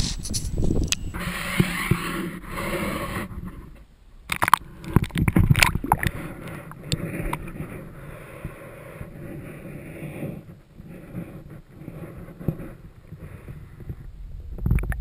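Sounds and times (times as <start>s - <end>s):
water splashing against camera: 4.3s - 7.7s
muffled underwater rush: 4.6s - 8.2s
sharp clicks and knocks: 13.9s - 15.0s.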